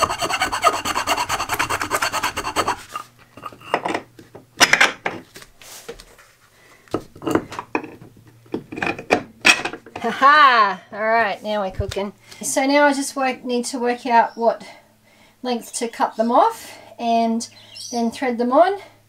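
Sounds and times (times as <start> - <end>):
round file rasping in wood: 0.0 - 3.7.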